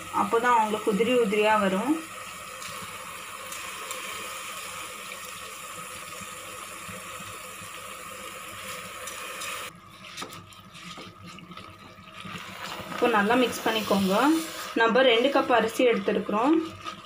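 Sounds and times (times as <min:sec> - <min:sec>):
vegetables sizzling in oil: 0:00.0 - 0:09.7, 0:12.2 - 0:17.0.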